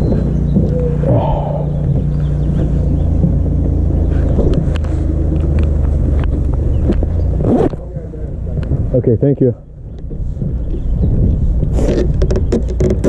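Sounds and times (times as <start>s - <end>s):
footsteps and knocks on dock: 0.0s - 0.9s, 1.8s - 4.8s, 11.9s - 13.0s
engine idling: 0.0s - 10.6s.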